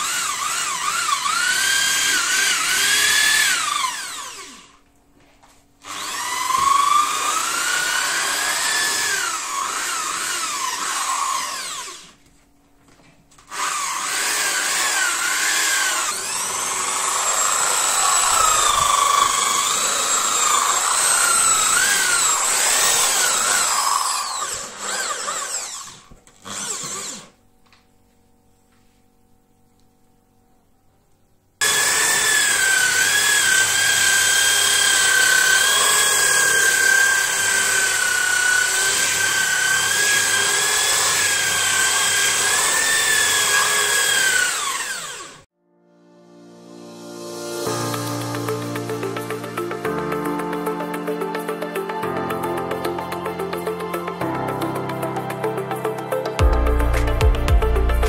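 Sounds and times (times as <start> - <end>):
electric drill motor whine: 0.0 - 4.9, 5.8 - 12.5, 13.3 - 27.8, 31.6 - 45.5.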